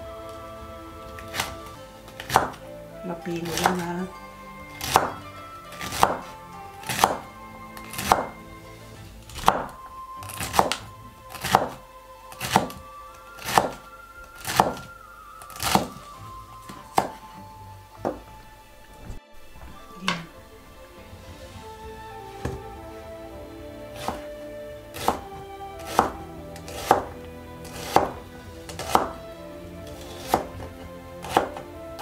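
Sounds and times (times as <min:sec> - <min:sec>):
soft background music: 0:00.0 - 0:32.0
knife chopping on wooden board: 0:02.2 - 0:02.6, 0:04.8 - 0:05.2, 0:05.8 - 0:06.3, 0:06.9 - 0:07.2, 0:07.9 - 0:08.4, 0:09.4 - 0:11.8, 0:12.4 - 0:12.8, 0:13.4 - 0:13.8, 0:14.4 - 0:14.9, 0:15.6 - 0:16.0, 0:16.7 - 0:17.2, 0:24.0 - 0:24.3, 0:25.0 - 0:29.2, 0:29.9 - 0:31.6.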